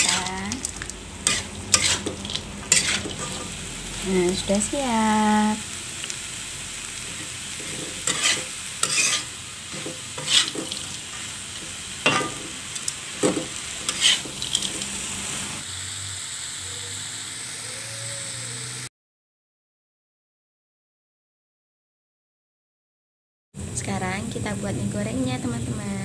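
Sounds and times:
spatula scraping a wok: 0.0 - 4.7, 6.0 - 15.6
food sizzling: 0.0 - 18.9, 23.6 - 26.0.

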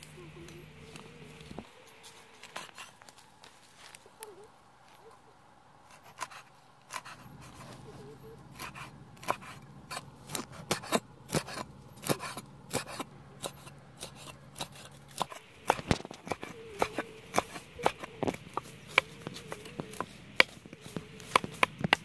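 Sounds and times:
cleaver chopping on wooden block: 8.6 - 22.0.

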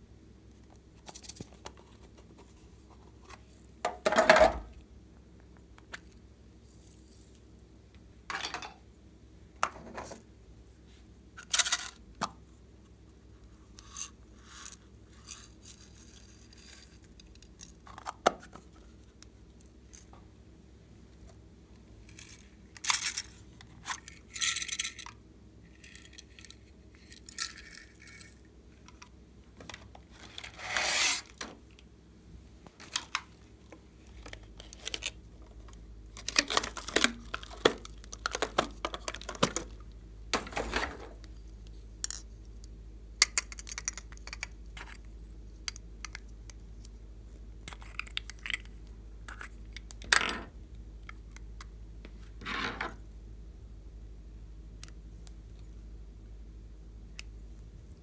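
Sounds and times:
plastic rubbing scrapes: 30.1 - 31.5
plastic containers clicking: 36.2 - 39.8.

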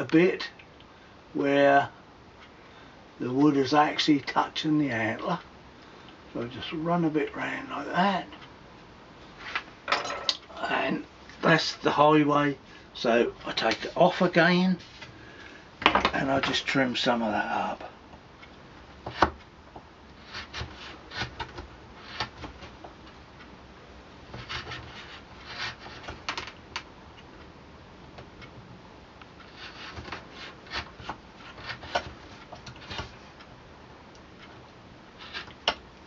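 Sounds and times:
knife scraping wood: 20.2 - 22.5, 24.4 - 26.2, 29.4 - 33.2, 35.2 - 35.6.

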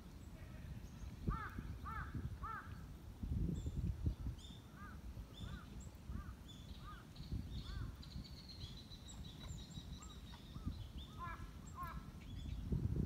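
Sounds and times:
short arched bird calls: 4.6 - 12.5.

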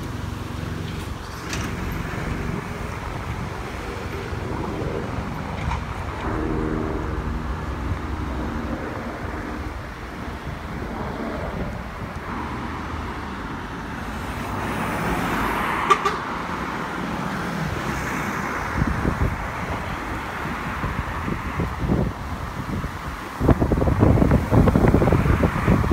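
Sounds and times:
traffic driving by: 0.0 - 25.9.

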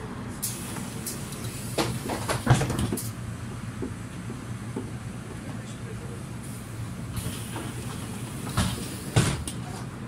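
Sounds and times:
bus engine and road rumble: 0.0 - 10.0
thump: 8.6 - 9.4.

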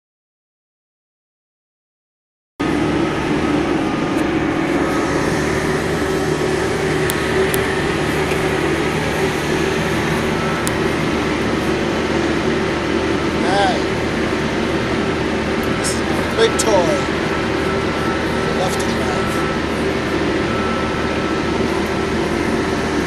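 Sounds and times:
diesel engine running: 2.6 - 23.0.

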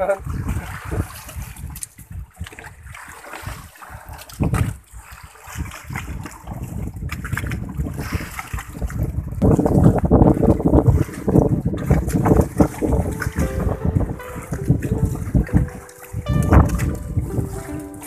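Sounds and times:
sea water sounds: 0.0 - 18.0
wind buffeting microphone: 0.0 - 18.0.

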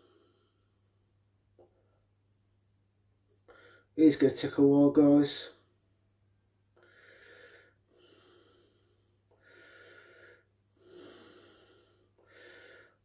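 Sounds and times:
person breathing softly: 0.0 - 2.7, 3.3 - 4.0, 6.8 - 13.0.

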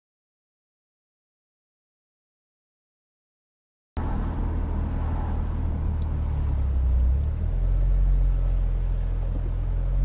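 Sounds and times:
car engine rumbling: 4.0 - 10.0.

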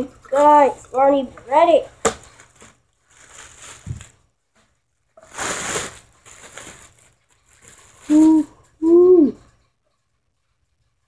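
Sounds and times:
plastic bag crinkling: 2.2 - 4.4, 5.2 - 8.5.

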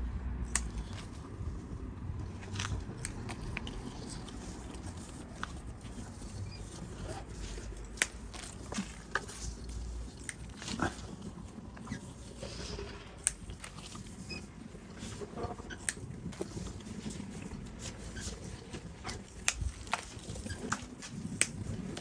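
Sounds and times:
scissors snipping: 0.4 - 1.4, 2.4 - 11.0, 13.2 - 13.9, 19.1 - 22.0.

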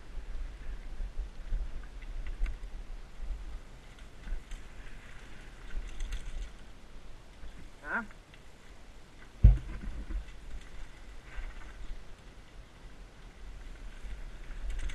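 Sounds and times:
wind rumble on microphone: 0.0 - 14.9
bike tyres clicking and rattling: 3.8 - 6.8, 13.7 - 14.9.

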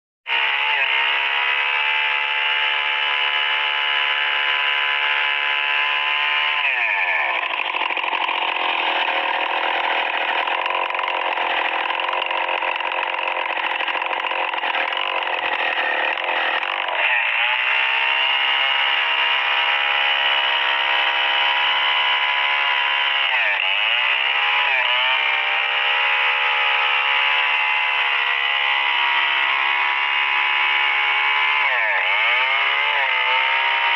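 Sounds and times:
chainsaw cutting through log: 0.3 - 33.9.

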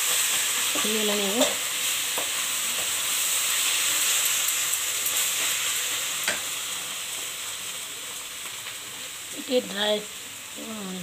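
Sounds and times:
cabbage sizzling in a frying pan: 0.0 - 11.0.

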